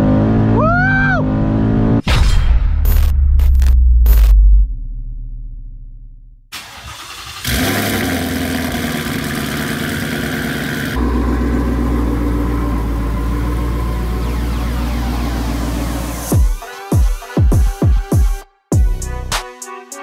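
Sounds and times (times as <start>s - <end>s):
car engine starting and idling: 6.5s - 16.3s.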